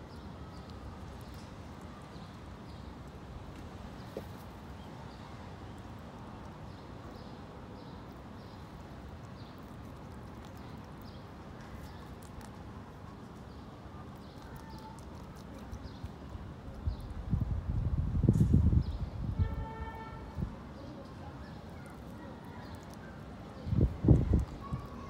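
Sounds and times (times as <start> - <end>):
wind rumble on microphone: 16.6 - 20.6, 23.6 - 25.0.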